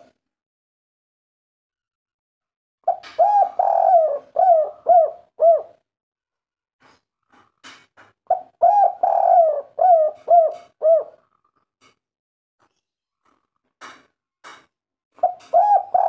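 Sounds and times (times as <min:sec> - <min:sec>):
dove cooing: 0:02.9 - 0:05.8, 0:08.3 - 0:11.2, 0:15.2 - 0:16.0.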